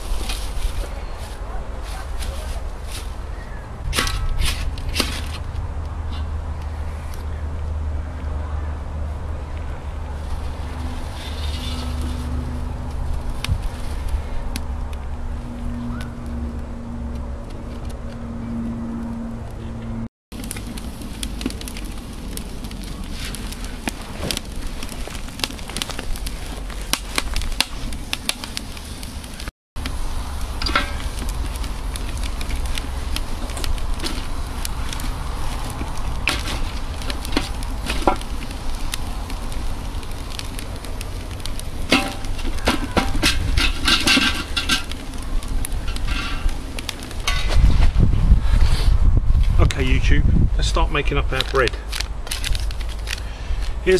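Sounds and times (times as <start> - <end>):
campfire crackling and popping: 0.0 - 18.4, 20.3 - 53.9.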